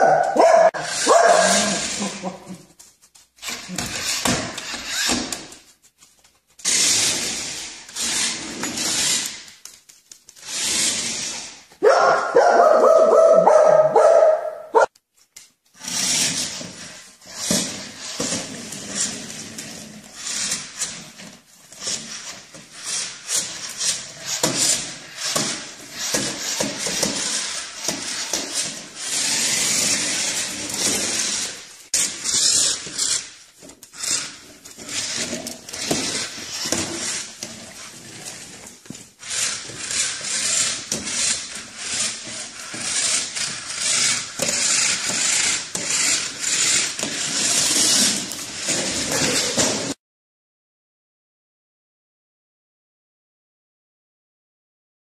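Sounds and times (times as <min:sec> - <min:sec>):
dog barking: 0:00.0 - 0:01.8, 0:11.8 - 0:14.9.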